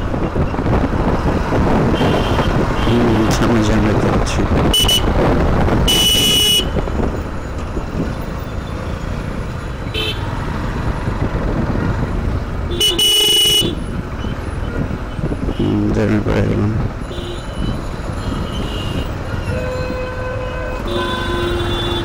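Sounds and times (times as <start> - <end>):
motorcycle engine and road rumble: 0.0 - 22.0
vehicle horn honks: 2.0 - 3.0, 5.9 - 6.8, 9.9 - 10.3, 12.7 - 13.8, 18.2 - 22.0.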